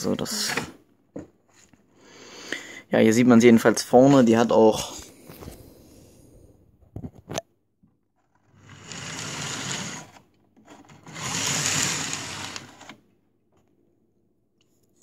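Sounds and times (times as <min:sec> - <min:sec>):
model train motor whirring: 0:08.6 - 0:10.2, 0:11.0 - 0:13.0.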